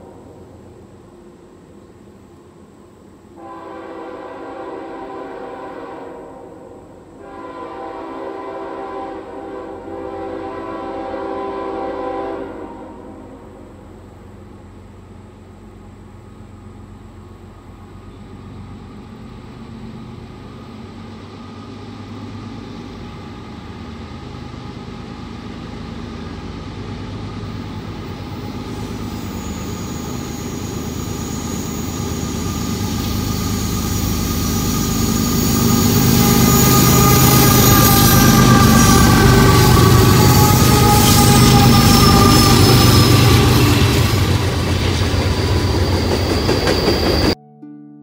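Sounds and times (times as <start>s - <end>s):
diesel locomotive engine drone: 0.0s - 47.4s
high whine: 27.4s - 47.4s.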